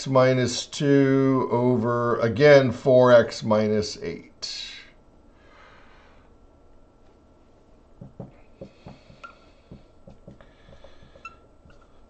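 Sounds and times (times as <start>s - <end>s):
marker writing on whiteboard: 8.0s - 12.0s.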